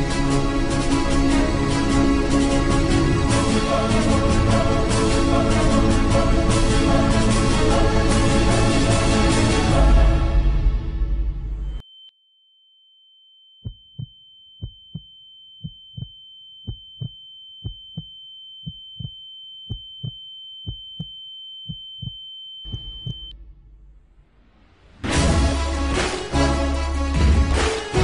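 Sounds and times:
loud music: 0.0s - 10.7s, 25.0s - 28.0s
heartbeat double thump: 13.6s - 23.4s.

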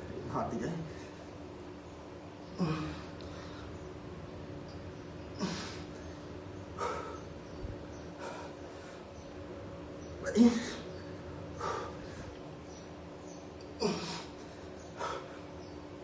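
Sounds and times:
steady low hum: 0.0s - 16.0s
man's forceful breaths: 5.4s - 9.2s, 10.6s - 12.5s, 13.8s - 15.6s.

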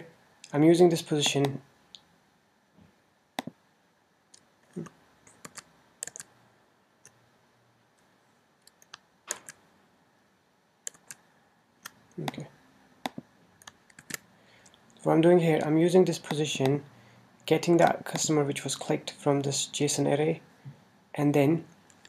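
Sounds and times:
mouse clicks: 3.4s - 3.6s, 10.8s - 11.2s, 13.0s - 14.8s
keyboard keystrokes: 4.7s - 6.3s, 8.7s - 9.6s, 10.8s - 11.2s.

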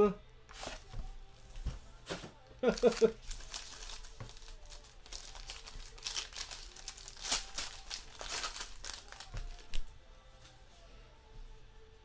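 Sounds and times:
handling cards: 0.5s - 9.9s
foil wrapper crinkling and tearing: 2.6s - 9.9s.

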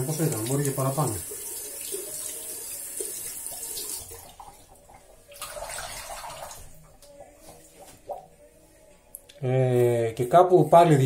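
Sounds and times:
tap water running into sink: 0.0s - 7.1s.

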